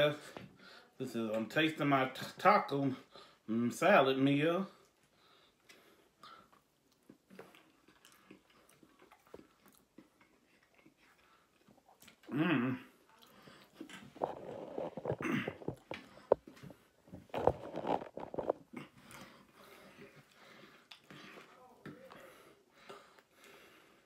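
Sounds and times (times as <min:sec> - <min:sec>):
person humming: 0:12.3 - 0:12.9.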